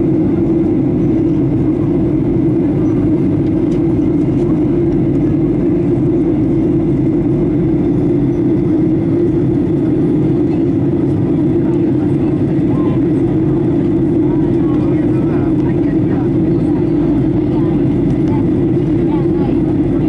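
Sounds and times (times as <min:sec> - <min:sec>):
airplane cabin drone: 0:00.0 - 0:20.0.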